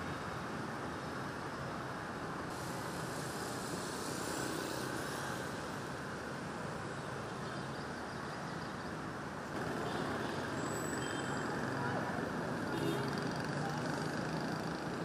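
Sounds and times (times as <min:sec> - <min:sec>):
distant city traffic hum: 0:00.0 - 0:15.0.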